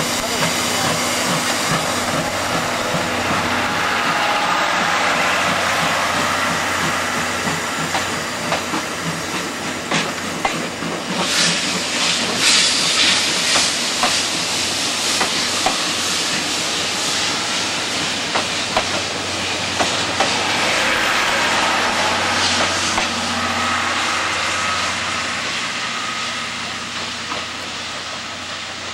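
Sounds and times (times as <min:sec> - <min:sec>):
steam hiss and exhaust: 0:00.0 - 0:28.9.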